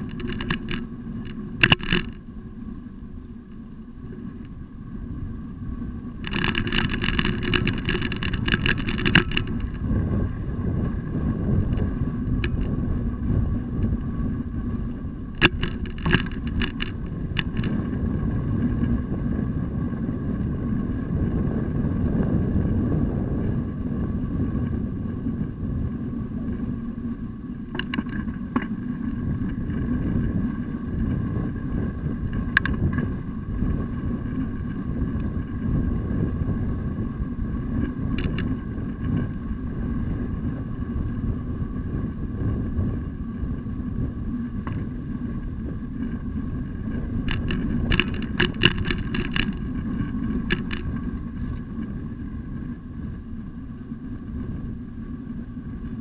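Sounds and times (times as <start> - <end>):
rapid ticking and rattling: 0.0 - 2.3, 6.1 - 19.0, 27.6 - 41.1, 41.8 - 53.2
wind and tyre rumble: 0.0 - 56.0.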